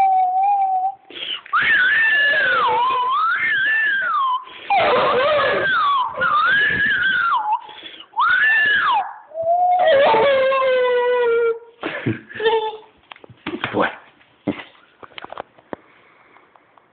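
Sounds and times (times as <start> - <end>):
puppy howling: 1.6 - 7.6, 8.2 - 11.7.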